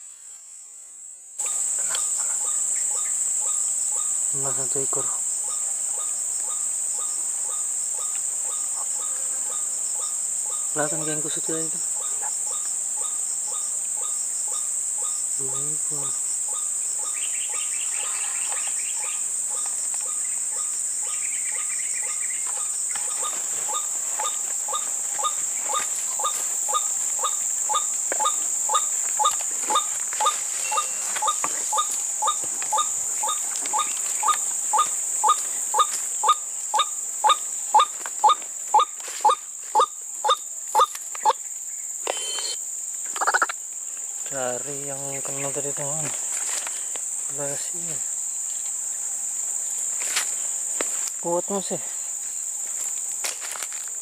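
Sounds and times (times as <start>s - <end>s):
high insect drone: 0.0s - 54.0s
waterhen calls: 21.5s - 41.4s, 43.2s - 43.5s.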